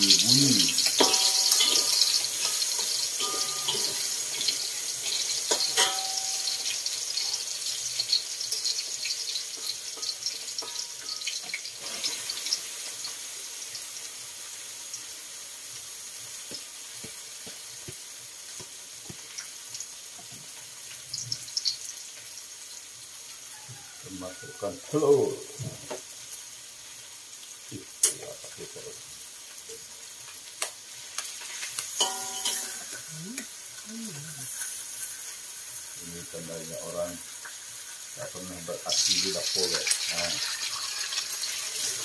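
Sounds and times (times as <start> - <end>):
garlic sizzling in hot oil: 0.0 - 42.0
metal spatula clinking on wok: 0.8 - 6.8, 32.0 - 32.9.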